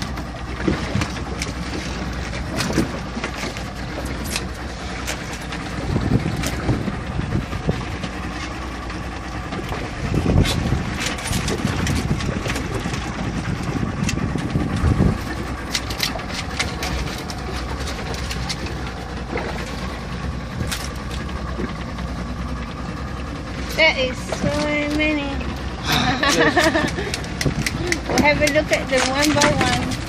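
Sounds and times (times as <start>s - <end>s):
outboard motor idling: 0.0s - 30.0s
wind gusts on microphone: 9.9s - 15.4s.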